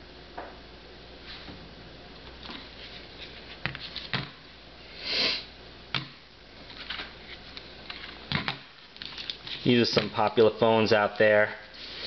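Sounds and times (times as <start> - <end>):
breathy sniff: 4.9 - 5.5.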